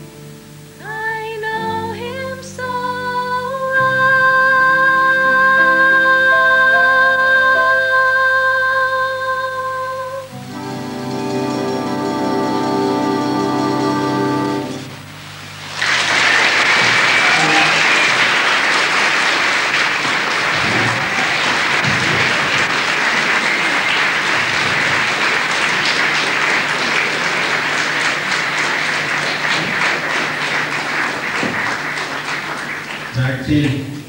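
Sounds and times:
audience applause: 15.2 - 33.9.

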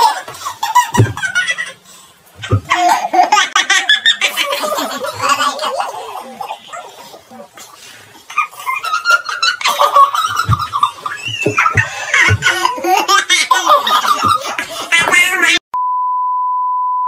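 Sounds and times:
high-pitched laughter: 2.4 - 7.6, 8.3 - 15.6.

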